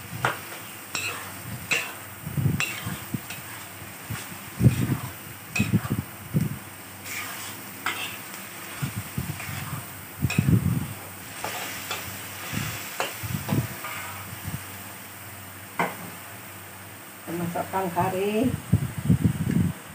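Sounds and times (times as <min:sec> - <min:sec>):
paste sizzling in hot oil: 0:00.0 - 0:15.2
metal spatula scraping a wok: 0:00.2 - 0:06.1, 0:07.0 - 0:14.3.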